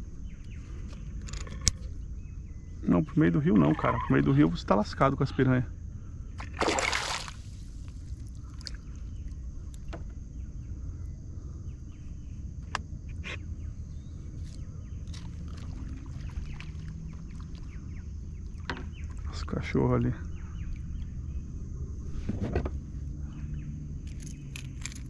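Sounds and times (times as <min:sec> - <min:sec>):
water and outdoor noise: 0:02.8 - 0:05.6, 0:06.3 - 0:10.2, 0:14.3 - 0:25.0
fish splashing at water surface: 0:06.4 - 0:07.6.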